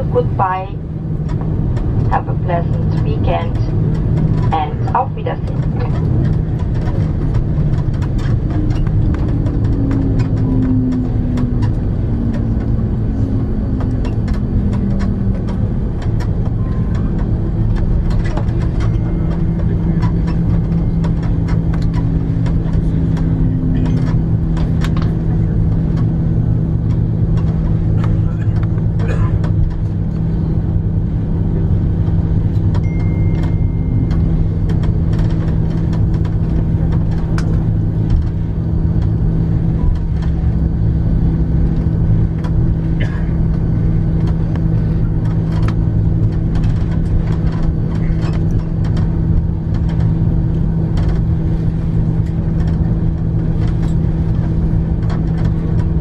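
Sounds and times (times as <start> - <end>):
jet engines humming at idle: 0.0 - 56.0
small clicks and rattles: 44.2 - 50.1.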